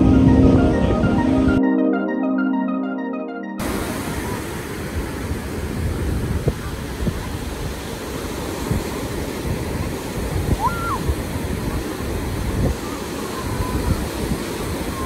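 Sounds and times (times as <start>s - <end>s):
ocean surf breaking: 3.6s - 15.0s
wind gusting on microphone: 3.6s - 15.0s.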